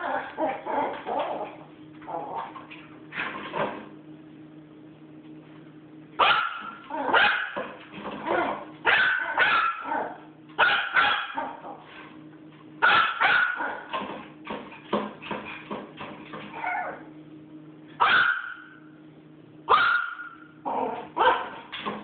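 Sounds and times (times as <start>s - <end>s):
small dog barking: 6.2s - 7.6s, 8.3s - 11.8s, 12.8s - 13.9s, 18.0s - 18.8s, 19.7s - 21.6s.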